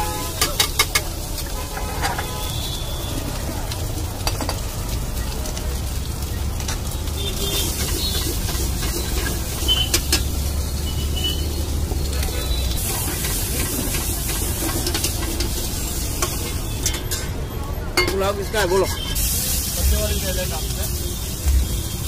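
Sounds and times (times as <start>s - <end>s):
rice sizzling in a pan: 0.0s - 22.0s
metal spatula clinking on pan: 16.2s - 17.4s, 18.0s - 19.2s.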